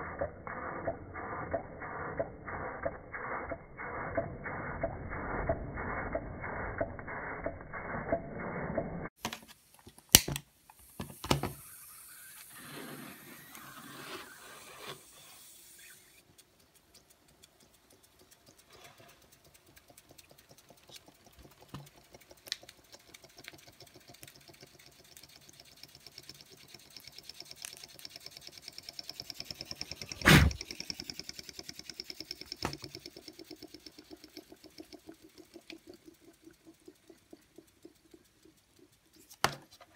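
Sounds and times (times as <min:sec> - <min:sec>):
toy steam engine clattering: 0:11.6 - 0:39.9
faint fast ticking: 0:15.2 - 0:39.9
scattered clicks and knocks: 0:16.2 - 0:39.9.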